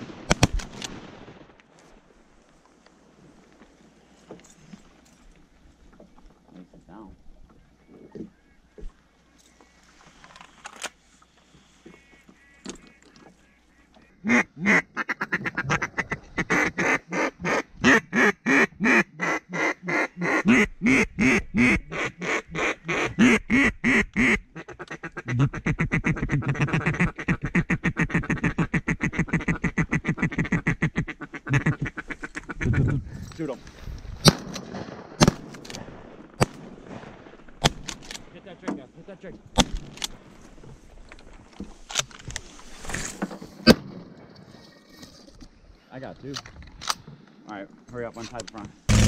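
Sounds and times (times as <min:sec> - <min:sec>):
duck call quacks: 0:11.8 - 0:33.0.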